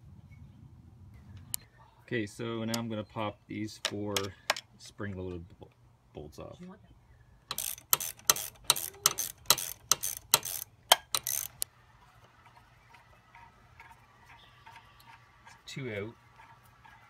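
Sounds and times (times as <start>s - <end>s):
socket ratchet clicking: 7.5s - 11.7s.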